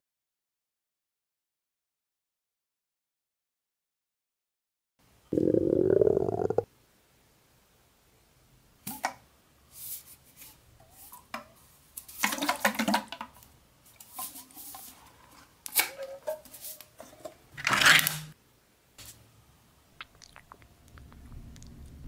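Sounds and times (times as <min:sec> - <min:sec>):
ring-pull lid tearing open: 0:17.6 - 0:18.3.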